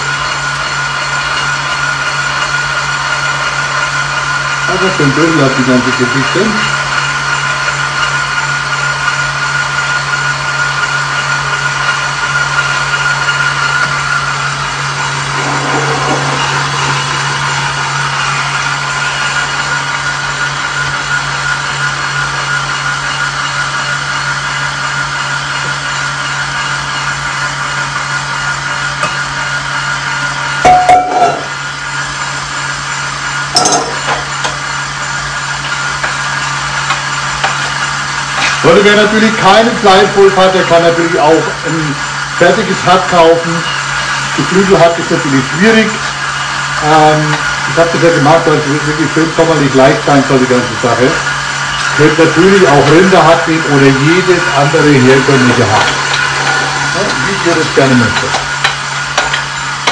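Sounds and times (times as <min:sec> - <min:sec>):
meat grinder humming and whining: 0:00.0 - 0:59.9.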